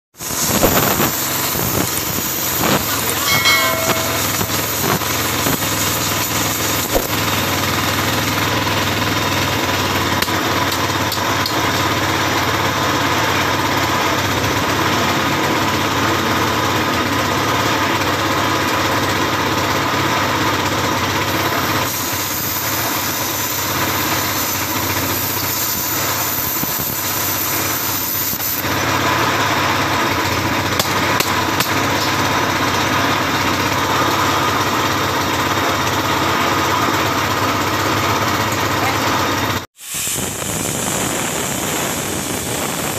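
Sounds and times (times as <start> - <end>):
plasma cutter hissing: 0.2 - 7.8, 21.3 - 28.7, 39.8 - 42.9
low hum: 3.2 - 5.6.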